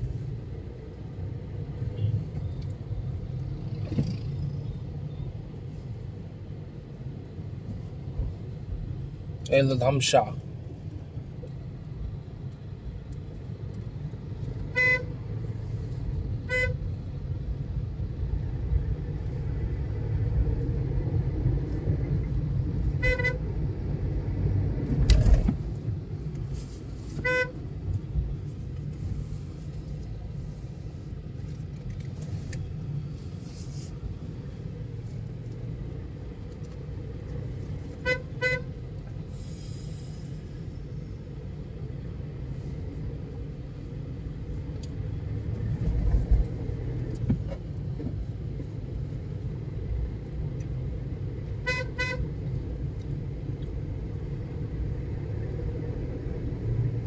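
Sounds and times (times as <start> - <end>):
car road and engine rumble: 0.0 - 57.0
car horn toots: 14.7 - 15.1, 16.5 - 16.8, 23.0 - 23.4, 27.2 - 27.5, 38.0 - 38.7, 51.6 - 52.2.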